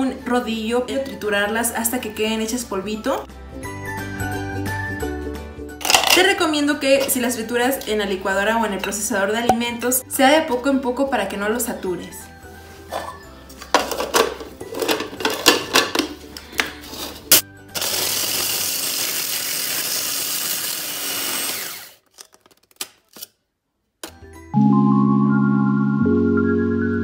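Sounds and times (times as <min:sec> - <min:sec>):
music: 0:00.0 - 0:20.1, 0:24.0 - 0:27.0
cookies clattering in plastic bowl: 0:05.8 - 0:07.3, 0:12.9 - 0:18.4
food processor grinding: 0:17.7 - 0:22.0.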